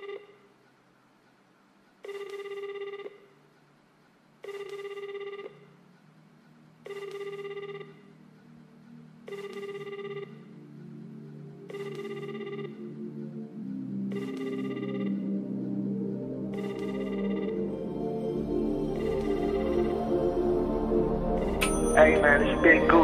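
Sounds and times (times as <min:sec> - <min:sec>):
telephone ringing: 0:02.0 - 0:03.3, 0:04.4 - 0:05.7, 0:06.9 - 0:08.1, 0:09.3 - 0:10.5, 0:11.6 - 0:13.0, 0:14.1 - 0:15.4, 0:16.5 - 0:17.7, 0:18.9 - 0:20.3, 0:21.4 - 0:23.0
low synth music: 0:07.6 - 0:23.0.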